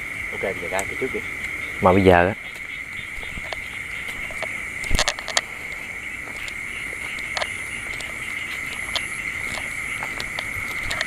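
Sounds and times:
crickets trilling: 0.0s - 11.0s
sharp cracks and knocks: 2.5s - 11.0s.

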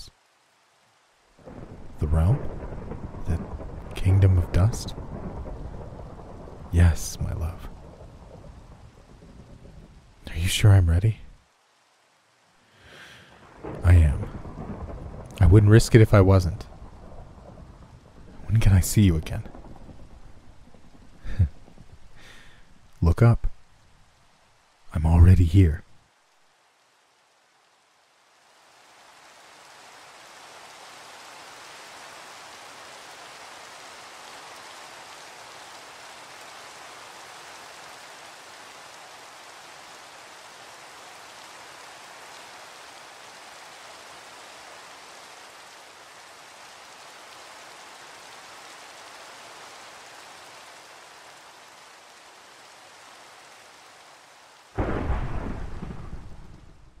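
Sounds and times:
steady rainfall: 0.0s - 57.0s
loud thunderclap rumbling: 1.4s - 9.9s, 13.5s - 15.4s, 54.8s - 57.0s.

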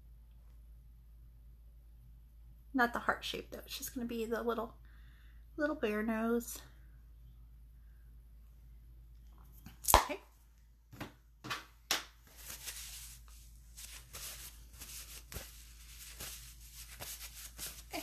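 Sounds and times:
soft rustling: 12.2s - 18.0s.

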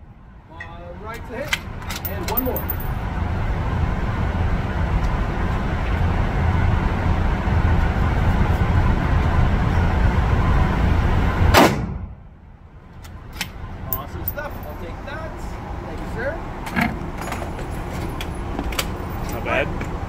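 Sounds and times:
rifle shot: 11.6s - 12.1s.

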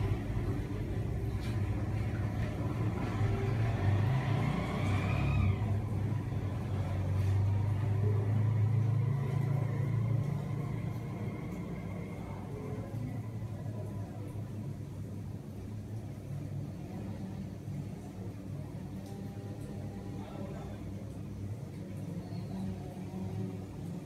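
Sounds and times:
motor traffic rumble: 0.0s - 13.1s.

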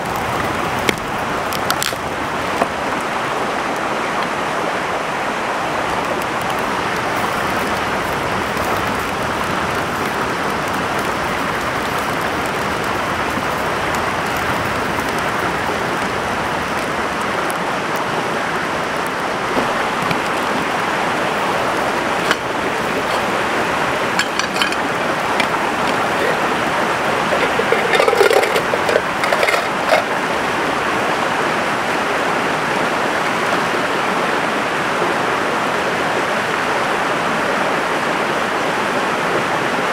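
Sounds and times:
stream water rushing: 0.0s - 39.9s
small knocks and clicks: 24.2s - 30.1s.

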